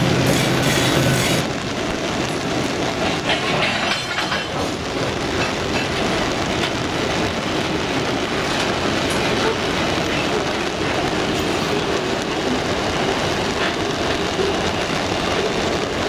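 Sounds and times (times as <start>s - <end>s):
train wheels rumbling on rail: 0.0s - 16.0s
wheels clacking over rail joints: 2.3s - 6.9s, 8.3s - 16.0s.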